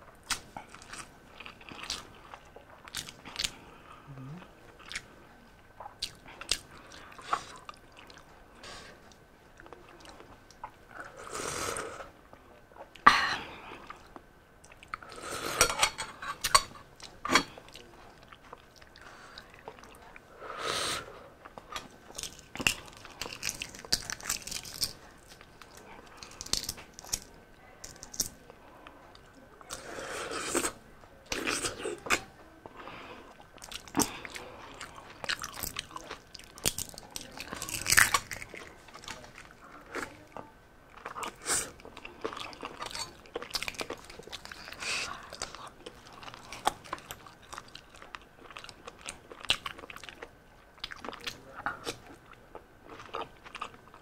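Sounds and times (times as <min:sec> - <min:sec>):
biting and chewing: 0:21.4 - 0:27.3, 0:33.4 - 0:54.0
eggshell crackling as peeled: 0:22.1 - 0:28.4.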